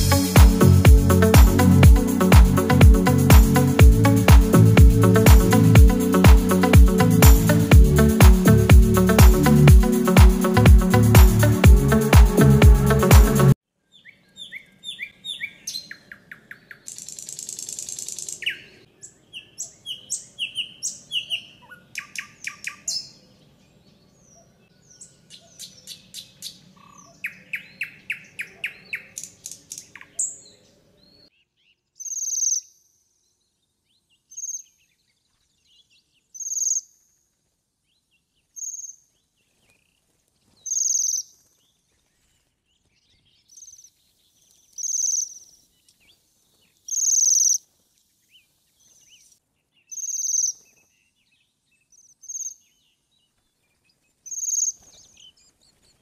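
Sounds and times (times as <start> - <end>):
songbirds singing: 13.8 - 37.2, 37.8 - 56.0.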